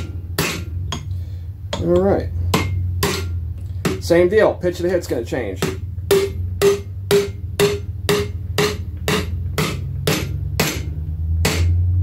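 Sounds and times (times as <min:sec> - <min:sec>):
hammer striking metal driver: 0:00.0 - 0:04.5, 0:05.6 - 0:12.0
steady low hum: 0:00.0 - 0:12.0.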